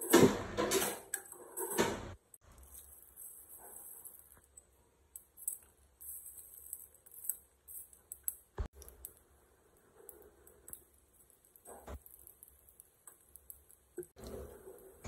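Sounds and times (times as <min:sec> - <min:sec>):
spices crackling in hot oil: 0:02.3 - 0:15.0.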